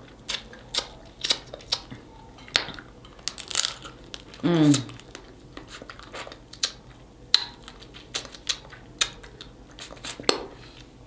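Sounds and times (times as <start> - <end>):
crab shells cracking: 2.5 - 5.4.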